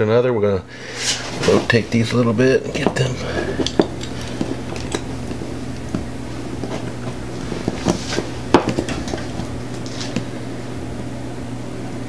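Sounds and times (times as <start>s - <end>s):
low hum: 0.6s - 12.0s
clicks and rustles of handling wires: 1.0s - 10.4s.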